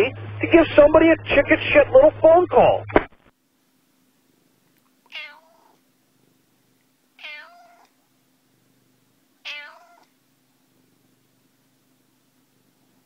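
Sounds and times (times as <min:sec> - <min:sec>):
faint steady hum: 0:00.0 - 0:13.0
cat meowing: 0:05.1 - 0:05.8, 0:07.2 - 0:07.9, 0:09.4 - 0:10.1.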